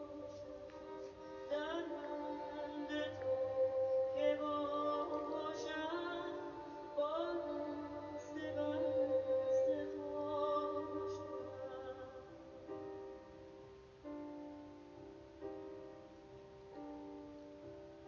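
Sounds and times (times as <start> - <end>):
woman singing: 0.0 - 12.7
bowed strings: 0.0 - 13.0.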